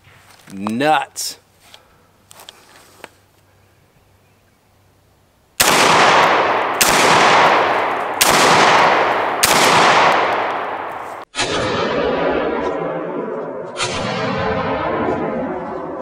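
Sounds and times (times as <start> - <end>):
shotgun shots with echo: 5.6 - 12.9, 13.8 - 15.5.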